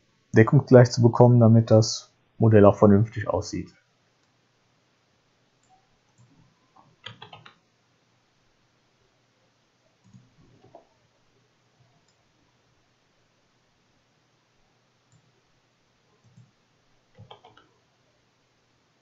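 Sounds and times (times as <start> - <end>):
computer keys and mouse clicking: 5.6 - 7.6, 10.0 - 10.8, 15.1 - 15.3, 16.2 - 16.5, 17.1 - 17.7.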